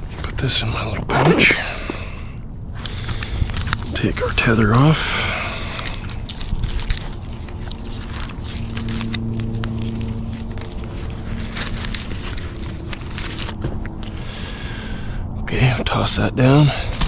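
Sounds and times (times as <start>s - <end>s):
steady low hum: 0.0s - 17.0s
rope rustling with clicks: 2.8s - 4.8s, 5.7s - 14.2s.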